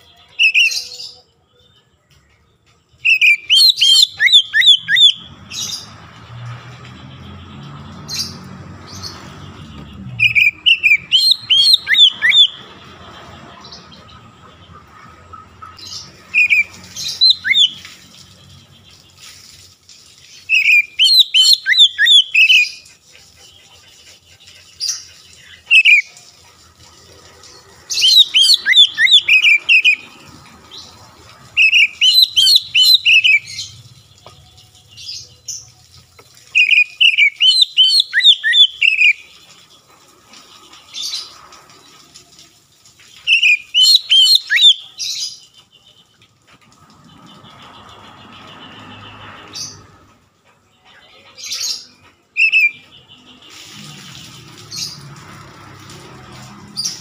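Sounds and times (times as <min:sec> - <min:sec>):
bird singing: 0:00.0 - 0:13.0, 0:13.6 - 0:26.2, 0:27.7 - 0:39.9, 0:43.1 - 0:46.3, 0:50.7 - 0:55.0.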